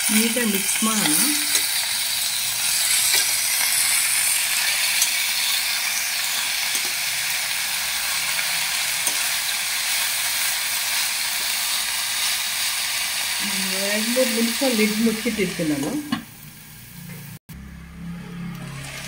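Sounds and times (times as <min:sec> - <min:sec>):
vegetables sizzling in oil: 0:00.0 - 0:17.4
metal spoon stirring and scraping: 0:00.5 - 0:10.5.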